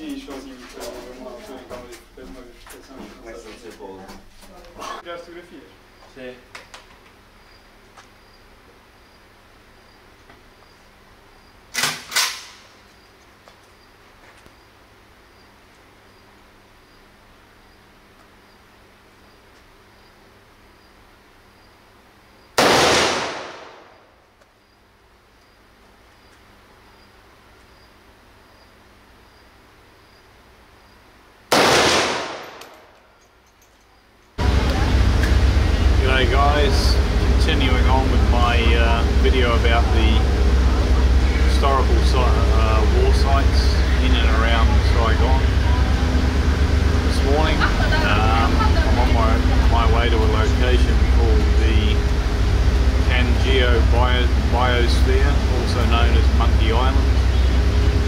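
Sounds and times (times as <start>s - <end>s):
insects chirping: 0.0s - 22.6s, 23.3s - 58.0s
loud sharp bangs: 22.6s - 24.2s, 31.5s - 33.0s.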